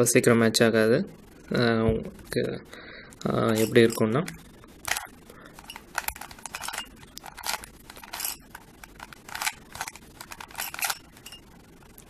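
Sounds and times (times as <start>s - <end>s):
puzzle cube clicking and scraping: 3.5s - 11.4s.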